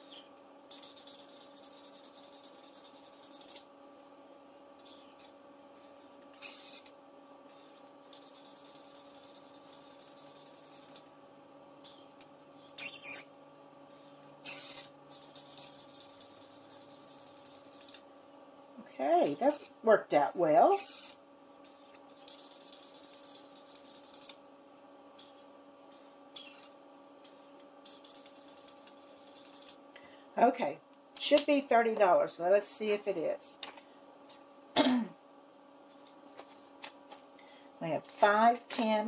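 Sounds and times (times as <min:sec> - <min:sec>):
marker scratching on card: 0:00.0 - 0:03.7, 0:04.8 - 0:05.4, 0:06.3 - 0:06.9, 0:07.5 - 0:11.0, 0:11.8 - 0:13.3, 0:13.9 - 0:18.0, 0:19.2 - 0:19.7, 0:20.7 - 0:24.4, 0:25.2 - 0:29.8
steady low hum: 0:00.0 - 0:39.0.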